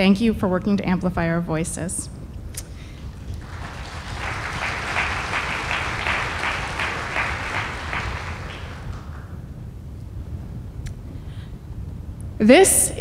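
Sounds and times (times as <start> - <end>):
audience applauding: 3.0 - 9.5.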